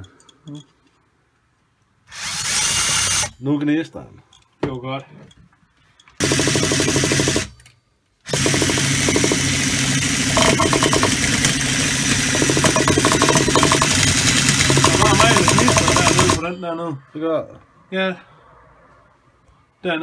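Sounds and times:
electric starter cranking engine: 0:02.1 - 0:03.3, 0:06.2 - 0:07.6, 0:08.3 - 0:16.4.

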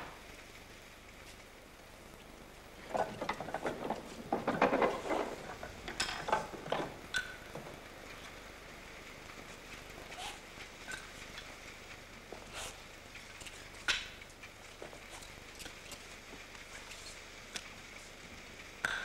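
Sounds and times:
metal frame clattering: 0:02.8 - 0:08.4.

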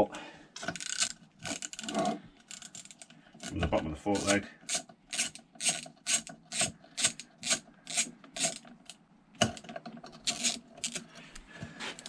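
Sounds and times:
hand ratchet clicking: 0:00.7 - 0:01.9, 0:02.5 - 0:08.7, 0:10.2 - 0:11.1.

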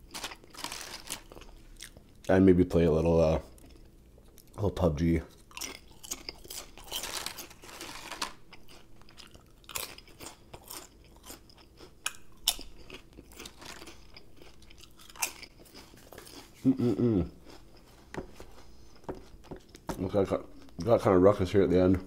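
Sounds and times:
chewing potato chips: 0:00.0 - 0:02.4, 0:05.2 - 0:18.0
person humming: 0:16.6 - 0:17.4.

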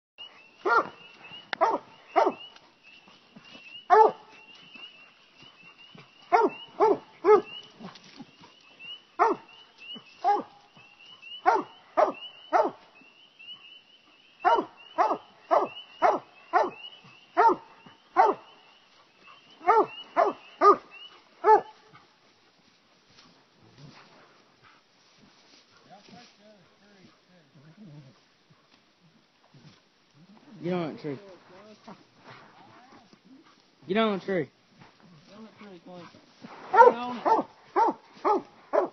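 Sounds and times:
hounds barking: 0:00.6 - 0:02.6, 0:03.8 - 0:08.0, 0:08.8 - 0:12.8, 0:14.4 - 0:22.1, 0:36.7 - 0:38.9.

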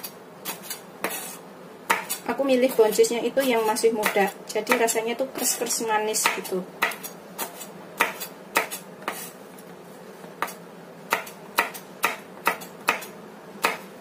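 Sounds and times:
knife cutting beans on board: 0:00.0 - 0:09.4.

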